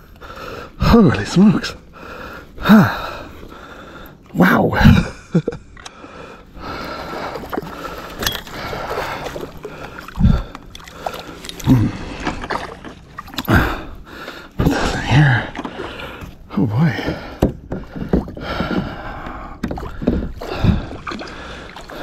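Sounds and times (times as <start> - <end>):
fish thrashing in water: 6.6 - 16.2, 17.0 - 22.0.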